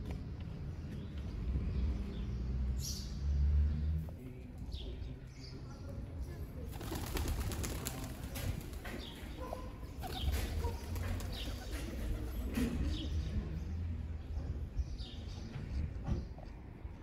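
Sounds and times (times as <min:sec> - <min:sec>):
small birds chirping: 0:00.1 - 0:17.0
pigeon wings flapping: 0:06.7 - 0:09.1, 0:10.0 - 0:12.6.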